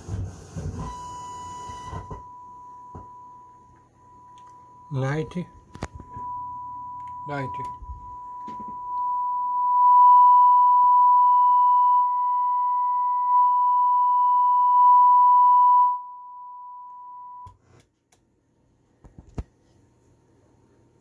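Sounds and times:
steady test tone: 0:00.8 - 0:17.5
clicks: 0:03.7 - 0:04.6.

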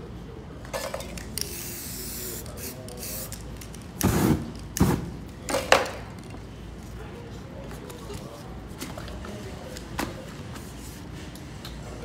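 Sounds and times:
spray can hissing: 0:01.4 - 0:03.4.

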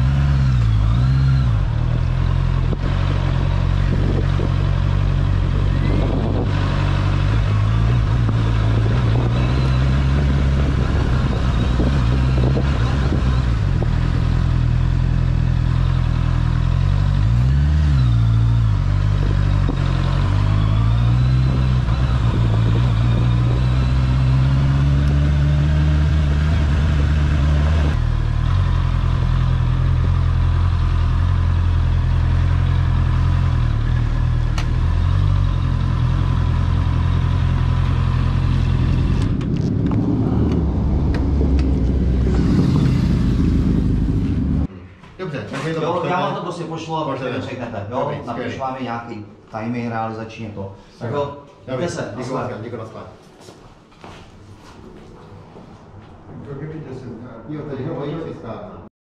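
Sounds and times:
motorcycle engine revving: 0:00.0 - 0:44.7.

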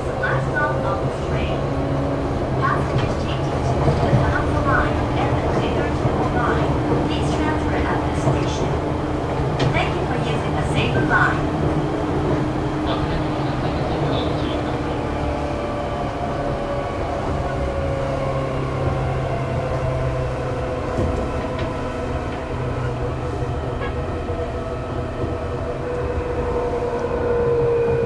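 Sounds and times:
wheels rumbling on track: 0:00.0 - 0:28.0.

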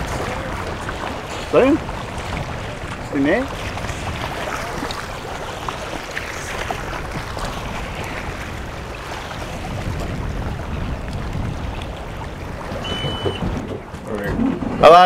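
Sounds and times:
waves splashing against hull: 0:00.0 - 0:15.0
wind rumbling on microphone: 0:00.0 - 0:15.0.

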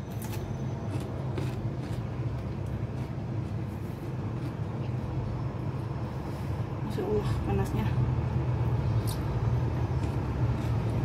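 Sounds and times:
crunchy chewing: 0:00.0 - 0:05.9, 0:09.0 - 0:11.0
steady low hum: 0:00.0 - 0:11.0.

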